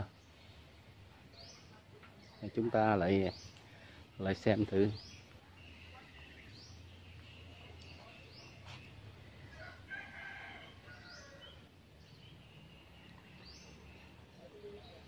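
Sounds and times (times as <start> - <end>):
faint birds calling: 0.0 - 15.0.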